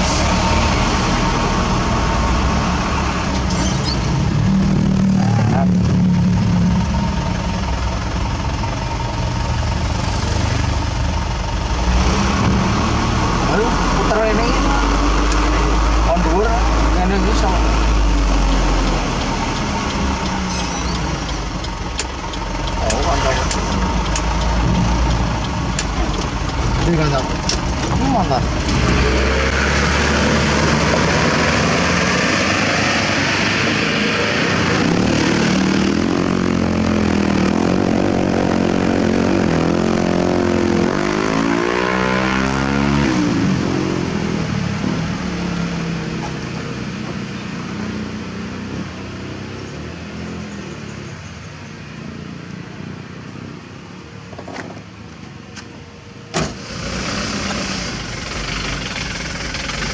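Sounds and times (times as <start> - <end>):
diesel truck engine running: 0.0 - 39.6.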